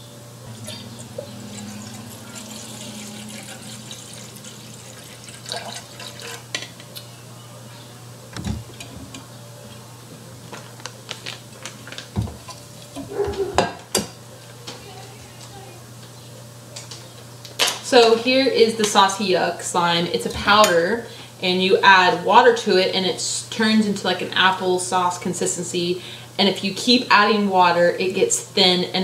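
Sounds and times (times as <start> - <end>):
water pouring into a bowl: 0.5 - 6.6.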